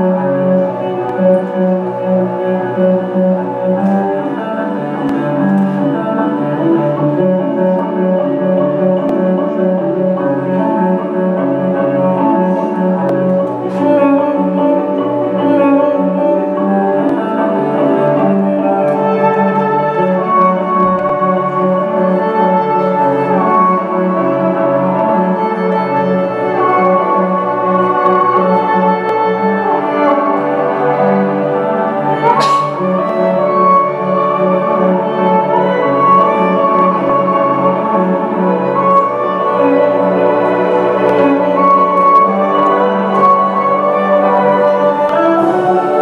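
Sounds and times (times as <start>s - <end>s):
instrumental music held notes: 0.0s - 46.0s.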